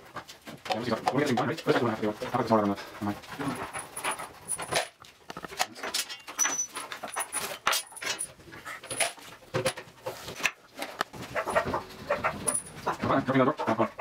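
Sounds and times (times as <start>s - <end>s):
loose screws rattling: 3.6s - 9.8s.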